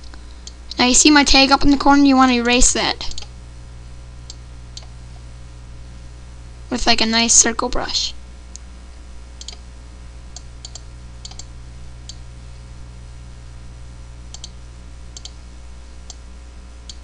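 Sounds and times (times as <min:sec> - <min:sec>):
low electrical hum: 0:00.0 - 0:17.0
computer mouse clicks: 0:03.1 - 0:03.3, 0:09.4 - 0:09.6, 0:10.4 - 0:12.2, 0:14.3 - 0:14.6, 0:15.2 - 0:15.4.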